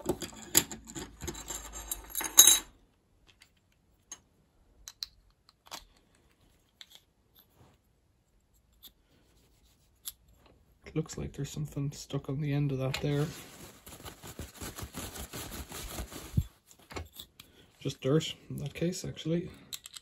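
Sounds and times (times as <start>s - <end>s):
metal motor parts clicking and rattling: 0.0s - 2.7s.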